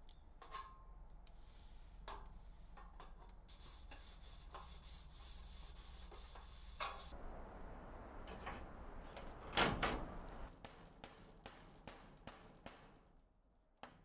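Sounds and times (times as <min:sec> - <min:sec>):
rag rubbing on sheet metal: 0:03.5 - 0:07.1.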